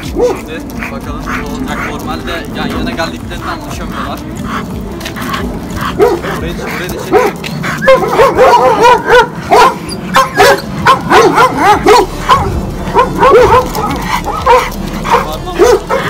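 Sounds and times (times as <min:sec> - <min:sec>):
dogs barking: 0:00.0 - 0:16.0.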